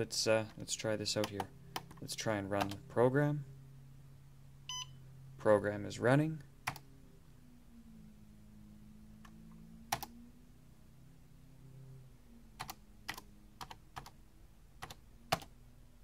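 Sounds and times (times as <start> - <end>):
keyboard key presses: 14.8 - 15.5.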